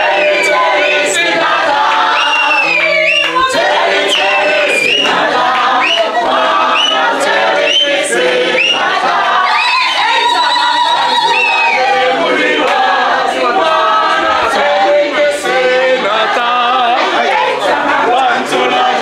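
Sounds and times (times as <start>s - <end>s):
group singing without instruments: 0.0s - 19.0s
high rising-and-falling cries: 2.1s - 12.2s.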